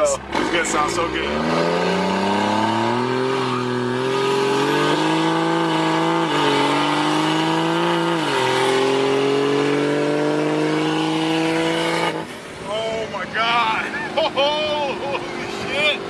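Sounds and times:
diesel pickup accelerating hard: 0.0 - 16.0.

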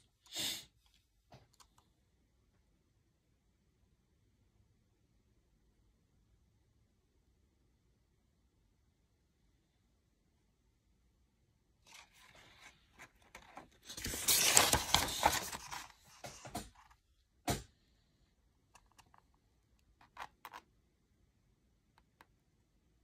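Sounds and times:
paper page turning: 11.9 - 17.0.

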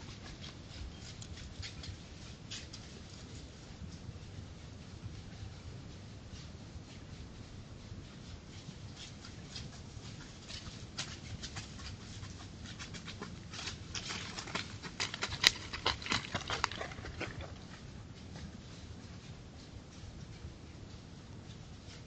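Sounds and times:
paws crunching dry leaves: 8.9 - 18.1.

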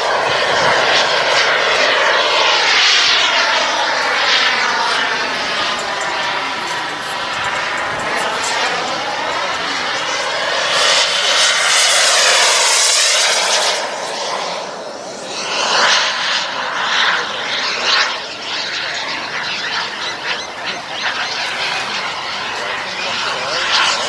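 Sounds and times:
model jet turbine whining: 0.0 - 24.0.

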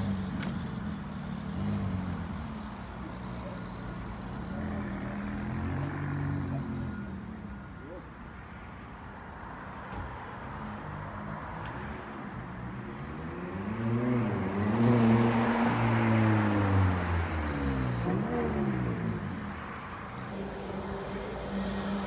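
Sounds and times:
sports car accelerating: 12.9 - 19.6.

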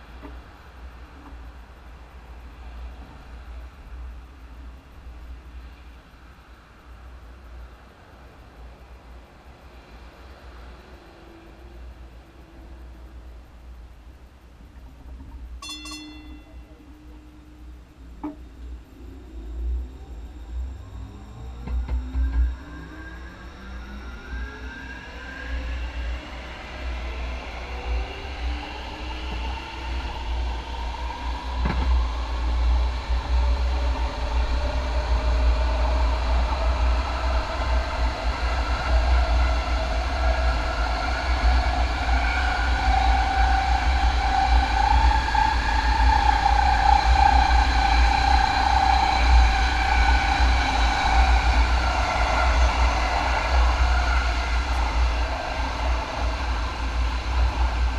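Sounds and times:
train traction motors whining: 0.0 - 57.9
wheels rumbling on rail: 0.0 - 57.9.

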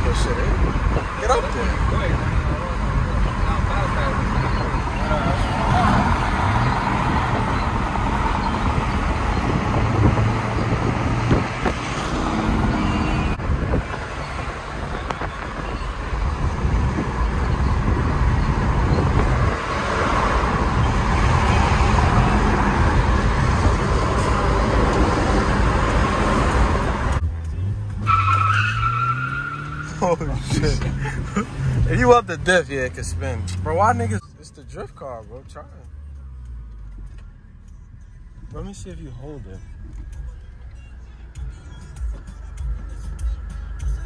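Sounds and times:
car engine under power: 0.0 - 34.2
tyre and road noise: 0.0 - 44.0.

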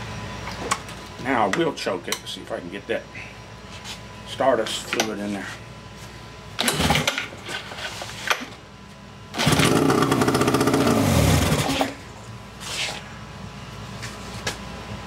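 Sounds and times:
outboard motor starting and dying: 6.6 - 7.3, 9.3 - 12.0.

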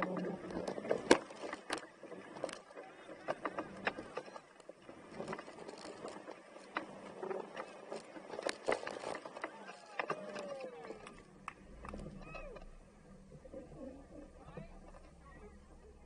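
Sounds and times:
stones clicking under tyres: 0.0 - 12.8
faint low engine hum: 9.6 - 16.0.

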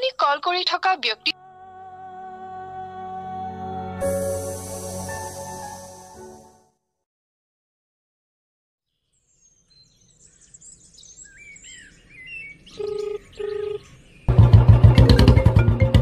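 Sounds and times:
loud music: 1.3 - 6.4
birds chirping: 9.2 - 14.4
phone ringback tone: 12.8 - 13.8.

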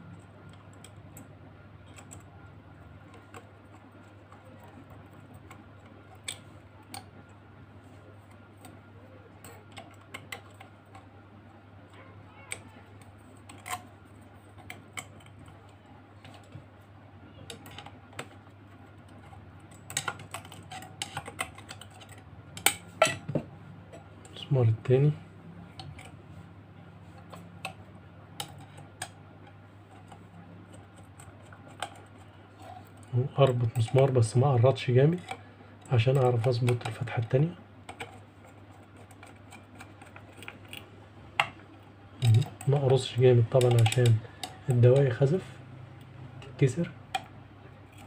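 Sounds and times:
faint low hum: 0.0 - 48.0
small clicks and taps: 42.2 - 45.1.

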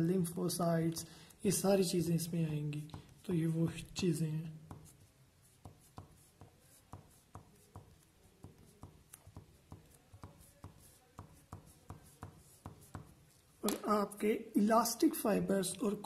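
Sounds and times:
pen tapping and scratching paper: 2.3 - 14.0.

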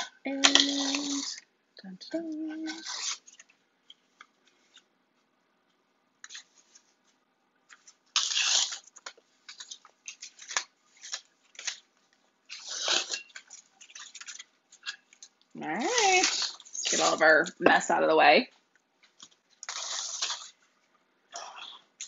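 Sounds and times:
paper crinkling and tearing: 0.0 - 1.4, 2.5 - 3.6, 7.7 - 17.4, 19.1 - 20.6.

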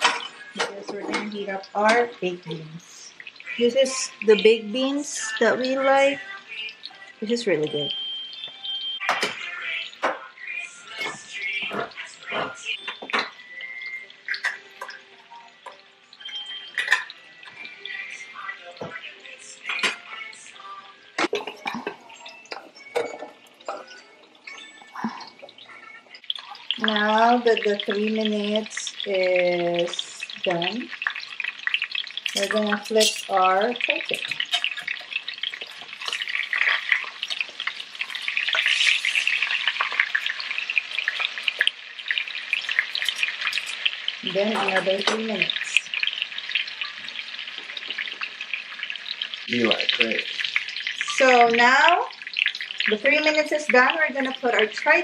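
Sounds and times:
kitchen utensils clinking: 0.0 - 2.4, 10.9 - 18.2, 19.6 - 20.2, 21.2 - 48.9
meat sizzling in skillet: 0.0 - 24.2, 24.9 - 55.0
light background music: 0.0 - 55.0.

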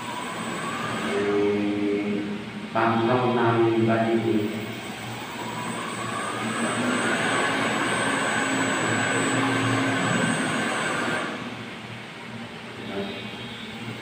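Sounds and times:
booster pump whining: 0.0 - 2.5, 3.2 - 11.9.

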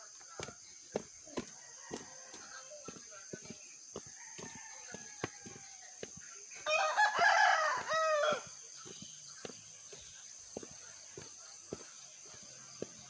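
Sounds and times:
footsteps on dirt path: 0.0 - 13.0
rooster crowing: 1.5 - 2.7, 4.1 - 5.9, 6.6 - 8.6.

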